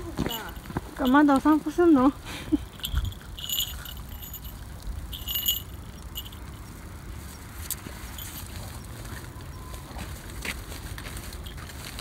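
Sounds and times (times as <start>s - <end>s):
harness fittings jingling: 0.0s - 6.8s, 7.6s - 9.2s, 11.2s - 12.0s
low outdoor rumble: 0.0s - 12.0s.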